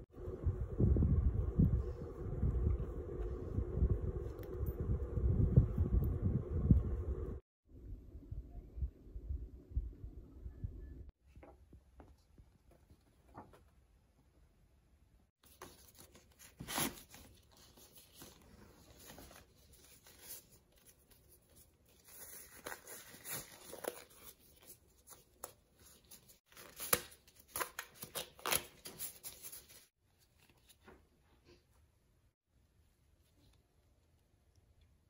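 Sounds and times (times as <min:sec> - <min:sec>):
rubber gloves rustling and stretching: 0:15.4 - 0:31.8.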